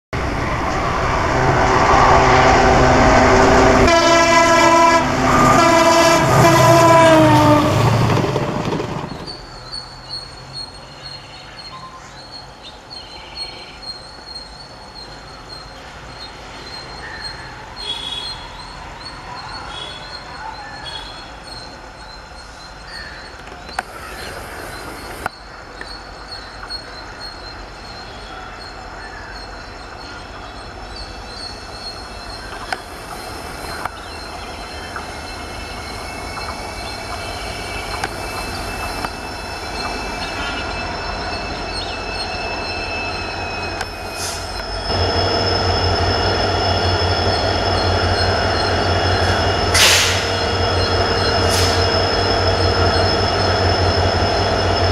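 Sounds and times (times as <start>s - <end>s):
passenger train passing: 0.1s - 54.9s
train horn: 2.0s - 7.8s
high chirping: 29.4s - 54.9s.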